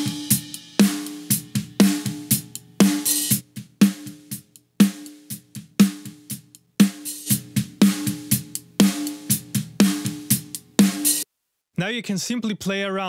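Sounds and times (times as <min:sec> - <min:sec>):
compressed snare drum hits: 0:00.0 - 0:06.2.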